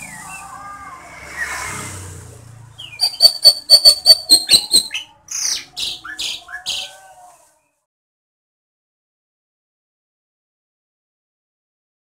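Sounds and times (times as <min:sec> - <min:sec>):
bird singing: 0:02.8 - 0:06.9.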